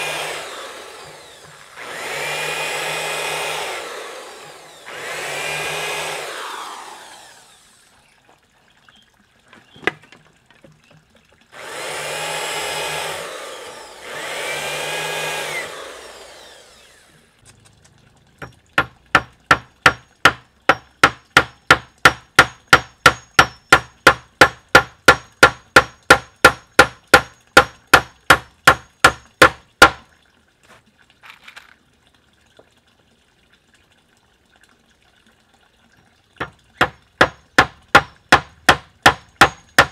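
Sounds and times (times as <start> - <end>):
power drill driving screws: 0.0 - 7.8, 11.6 - 17.2
hammer striking nails: 18.8 - 30.0, 36.4 - 39.9.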